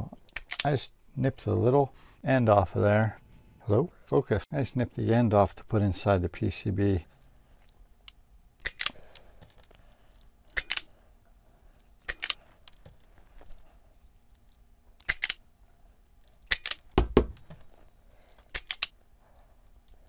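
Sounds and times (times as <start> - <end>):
dull knock: 17.0 - 17.4.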